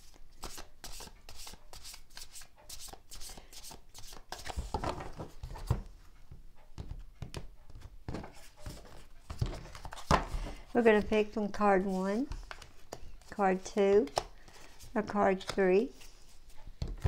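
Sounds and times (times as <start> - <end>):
cards being shuffled: 8.3 - 16.4.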